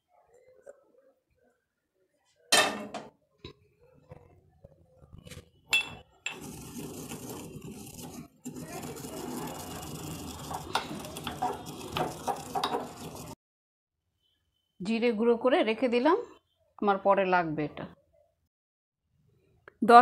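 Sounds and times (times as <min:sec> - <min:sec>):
pestle grinding seeds: 0:06.3 - 0:13.4.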